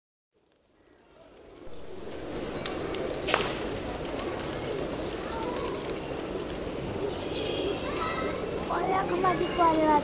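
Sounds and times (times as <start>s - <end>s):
pigeons cooing: 1.4s - 9.8s
sharp crack: 2.6s - 3.8s.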